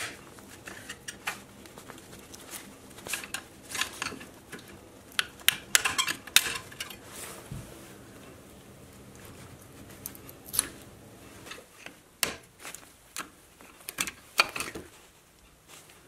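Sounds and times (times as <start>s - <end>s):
tools scraping on metal: 0.0s - 1.5s, 2.4s - 7.2s.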